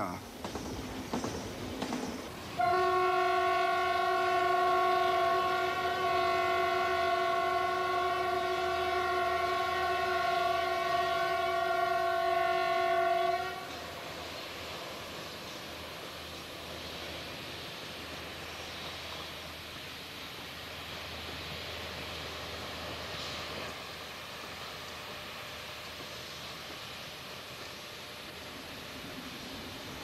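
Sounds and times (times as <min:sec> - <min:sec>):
train running: 0:00.0 - 0:30.0
locomotive horn blast: 0:02.6 - 0:13.8.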